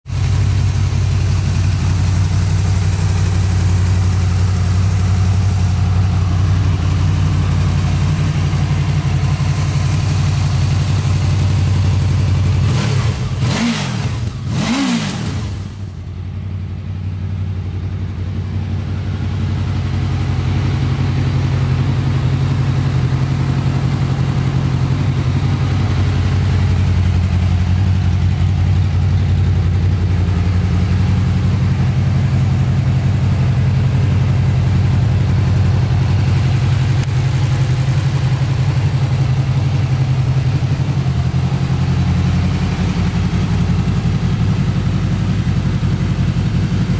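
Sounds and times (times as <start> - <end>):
motorcycle engine idling and revving: 0.0 - 46.9.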